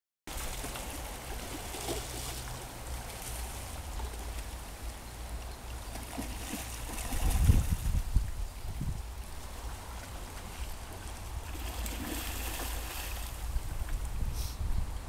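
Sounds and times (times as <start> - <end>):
creek water rushing over gravel: 0.3 - 14.2.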